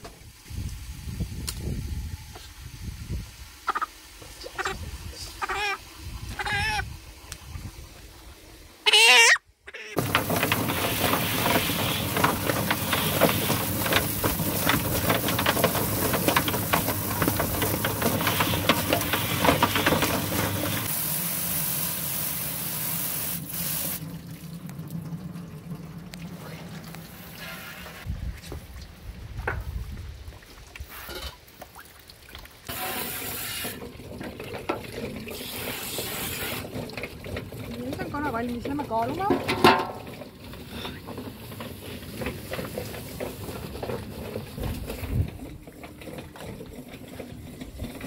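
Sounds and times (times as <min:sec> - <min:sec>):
chicken plucker drum spinning: 0:10.0 - 0:20.9, 0:32.7 - 0:48.0
water spraying into drum: 0:10.0 - 0:30.2, 0:30.8 - 0:48.0.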